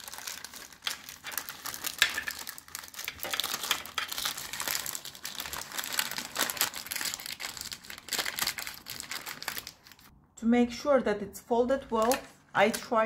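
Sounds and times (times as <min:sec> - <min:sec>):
baking paper crinkling: 0:00.0 - 0:10.1.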